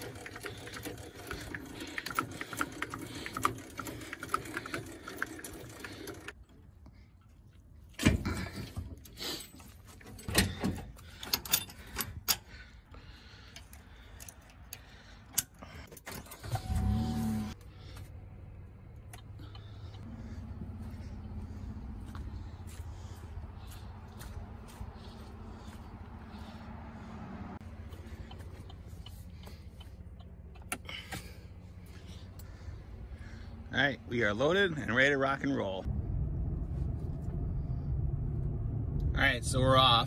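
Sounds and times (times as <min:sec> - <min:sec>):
steady rattle: 0:00.0 - 0:06.5
metal clanks of trailer hitch: 0:09.6 - 0:12.6
vehicle engine starting and idling: 0:14.8 - 0:34.4, 0:35.8 - 0:40.0.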